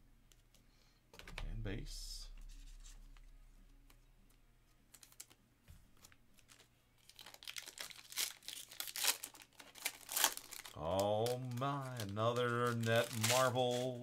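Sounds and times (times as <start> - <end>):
foil wrapper crinkling and tearing: 4.9 - 5.4, 6.0 - 14.0.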